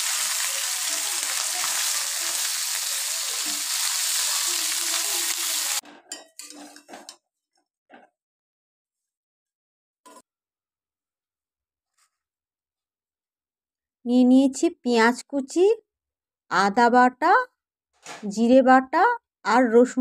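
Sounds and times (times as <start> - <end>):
fish sizzling in hot oil: 0.0 - 5.8
metal spatula stirring: 6.1 - 7.2.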